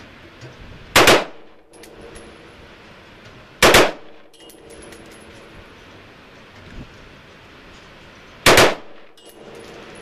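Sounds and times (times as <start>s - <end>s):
rifle firing a loud burst: 1.0s - 1.4s, 3.6s - 4.1s, 8.5s - 8.9s
light metallic clinks: 1.7s - 2.9s, 4.2s - 8.4s, 9.0s - 10.0s.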